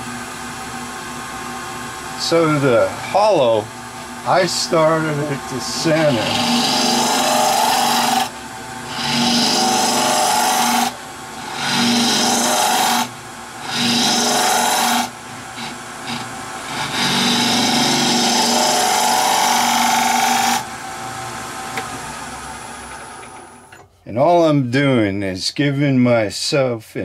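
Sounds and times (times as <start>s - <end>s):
lathe humming: 0.0s - 23.7s
lathe tool scraping wood: 4.3s - 20.7s.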